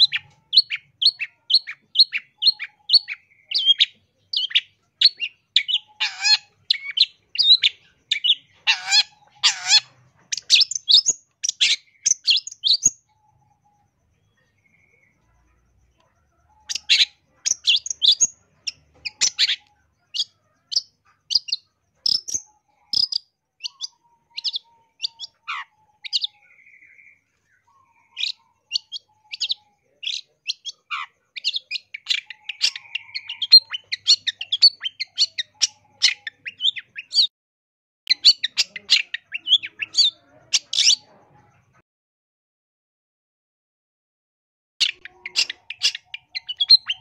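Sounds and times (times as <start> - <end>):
bird singing chirps and whistles: 0.0 - 15.1, 16.6 - 37.3, 44.8 - 47.0.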